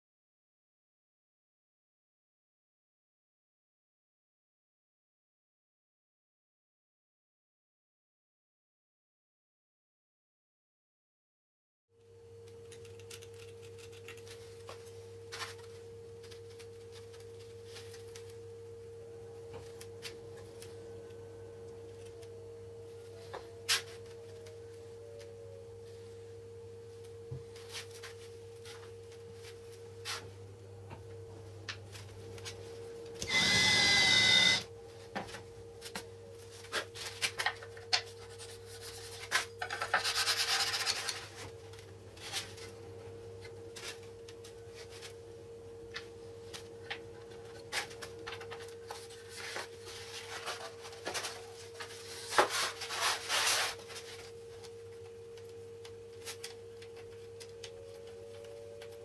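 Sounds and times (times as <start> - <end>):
faint steady hum: 12.0 - 59.0.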